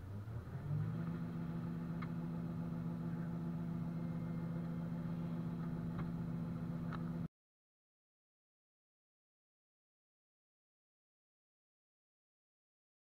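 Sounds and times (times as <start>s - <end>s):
harvester engine running: 0.0s - 7.3s.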